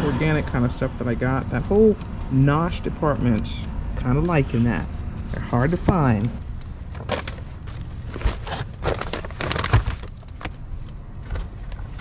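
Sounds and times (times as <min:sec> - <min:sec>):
low steady rumble: 0:00.0 - 0:12.0
shopping bags rustling: 0:07.0 - 0:10.6.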